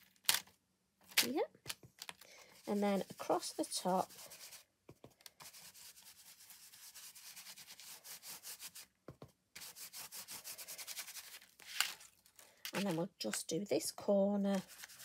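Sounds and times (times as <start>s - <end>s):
stencil brush rubbing on paper: 2.5s - 4.7s, 5.4s - 8.9s, 9.6s - 11.4s, 14.5s - 15.0s.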